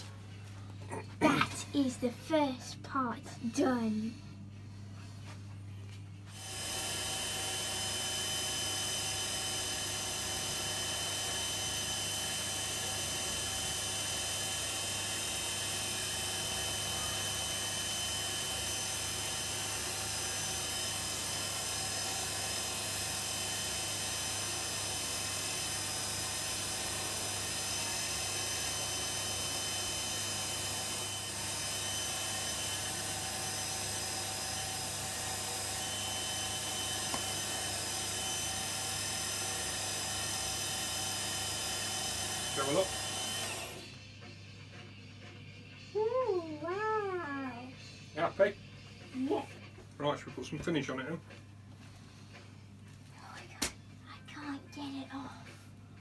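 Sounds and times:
wood lathe motor whine: 6.3s - 44.1s.

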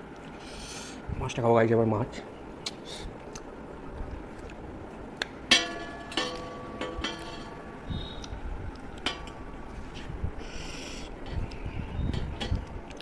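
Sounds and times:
metal plates clinking: 5.5s - 7.9s, 9.0s - 9.6s.

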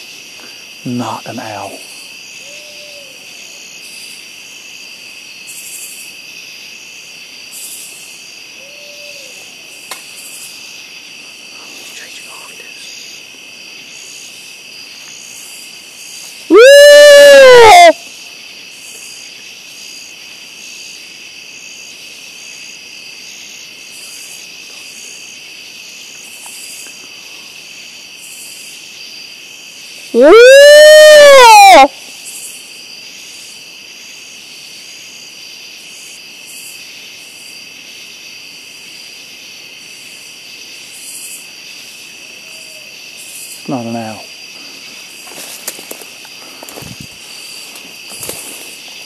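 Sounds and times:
crickets and insects chirping: 0.0s - 49.0s
loud whooping animal call: 16.5s - 18.0s, 30.2s - 31.9s.

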